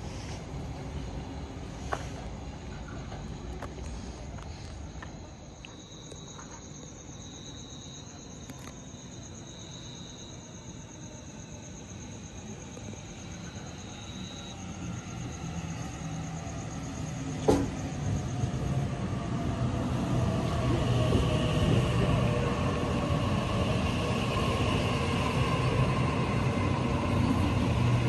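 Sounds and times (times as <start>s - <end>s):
electric train rumble and motor hum: 0.0s - 28.0s
insect chirping: 0.7s - 20.1s.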